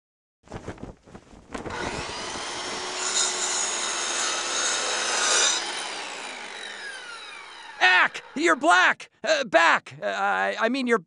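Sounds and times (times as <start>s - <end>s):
power tool grinding: 1.7s - 8.6s.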